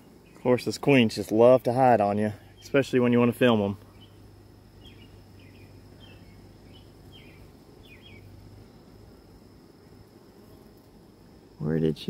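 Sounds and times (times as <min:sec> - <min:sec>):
honeybees humming: 0:00.0 - 0:12.0
bird chirping: 0:02.3 - 0:09.0.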